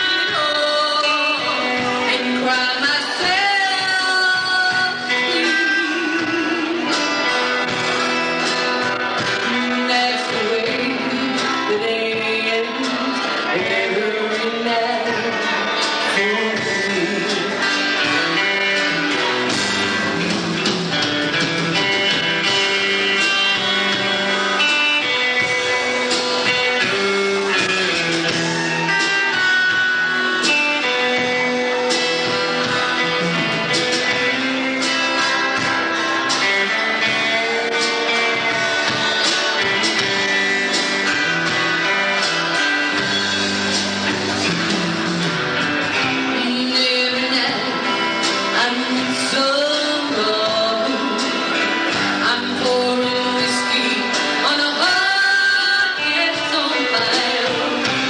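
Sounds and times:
guitar: 0:00.0 - 0:58.0
person singing: 0:00.0 - 0:58.0.

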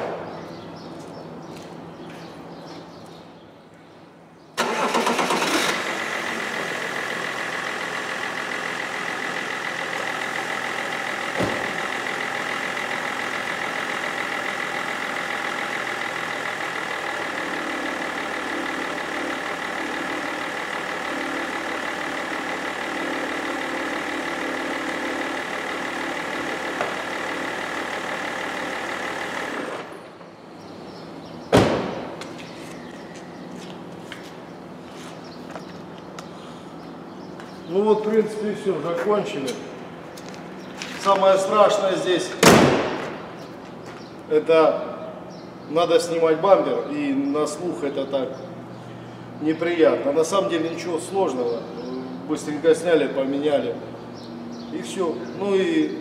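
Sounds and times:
diesel engine cranking and idling: 0:04.6 - 0:56.0
single thump: 0:31.5 - 0:32.2.

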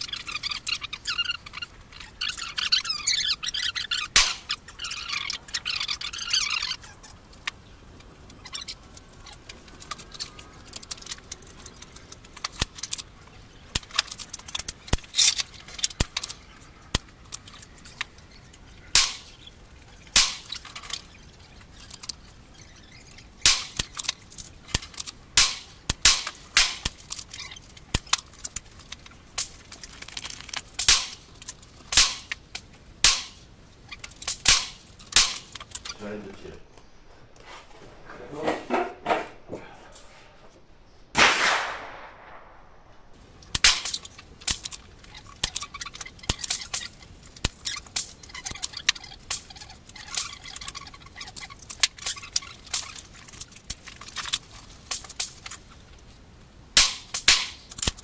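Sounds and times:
high chirping: 0:00.0 - 0:10.5
rifle shots: 0:41.1 - 0:42.9.

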